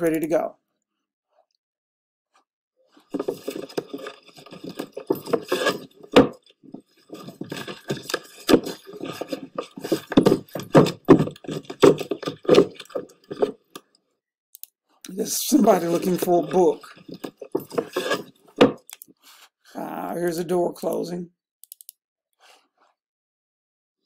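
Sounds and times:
rubbing scraping and knocking: 3.0s - 13.8s, 15.2s - 18.8s.

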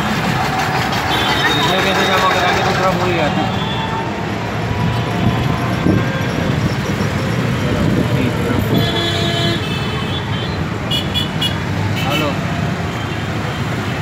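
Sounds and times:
rickshaw engine rumble: 0.0s - 10.8s
street traffic: 0.0s - 14.0s
vehicle horn tooting: 1.1s - 4.2s, 8.6s - 12.4s.

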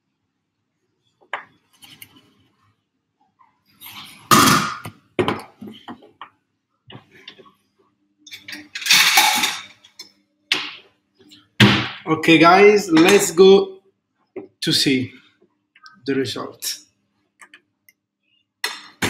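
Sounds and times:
kitchenware clinking: 8.3s - 10.7s
kitchenware clattering: 8.3s - 10.8s.

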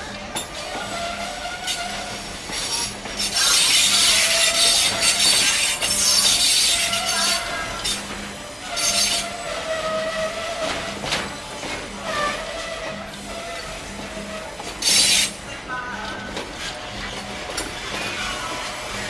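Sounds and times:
train brakes squealing: 0.4s - 11.1s, 12.0s - 15.4s.

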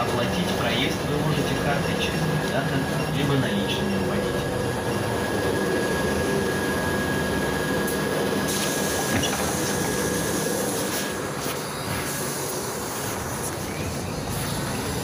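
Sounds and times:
thin high whine: 0.0s - 15.0s
bus engine and road noise: 13.0s - 15.0s.

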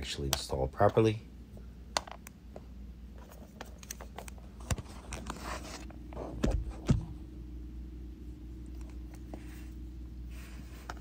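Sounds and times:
hands handling wiring: 1.9s - 7.0s.

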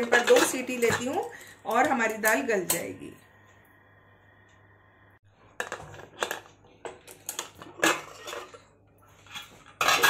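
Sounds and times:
metal lid clinking and scraping: 0.0s - 1.3s, 5.6s - 10.0s.

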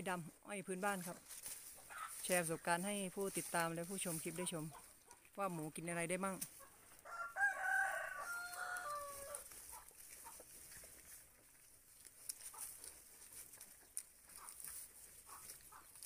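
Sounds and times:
rooster crowing: 7.0s - 9.5s.

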